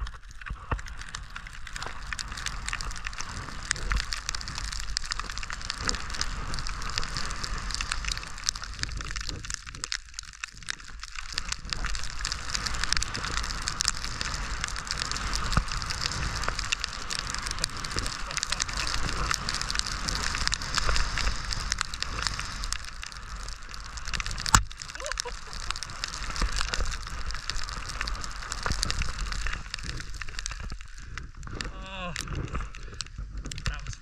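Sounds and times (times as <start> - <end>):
skis hissing through powder snow: 0.5 - 9.7, 10.8 - 31.4
steady low rumble: 10.6 - 34.0.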